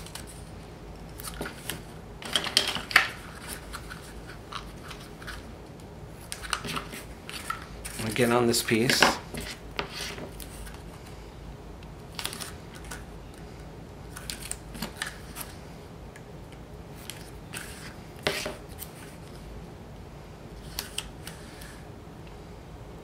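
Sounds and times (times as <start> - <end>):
tape and paper crackling: 0.0 - 11.2, 12.1 - 15.6, 17.0 - 19.4, 20.6 - 21.8.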